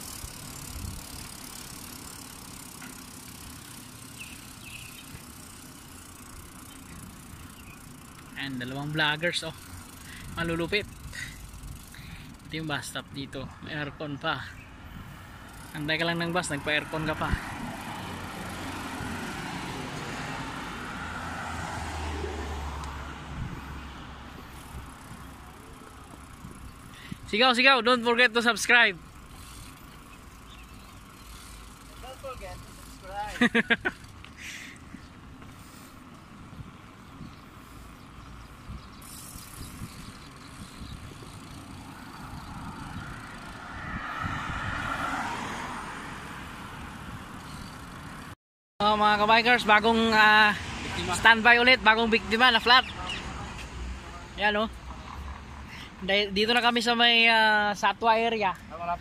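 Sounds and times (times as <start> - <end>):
road traffic rumble: 0.0 - 59.0
wind rumbling on microphone: 0.2 - 1.3, 22.1 - 25.4, 34.8 - 47.7
passing vehicle: 13.5 - 27.8, 28.4 - 56.4.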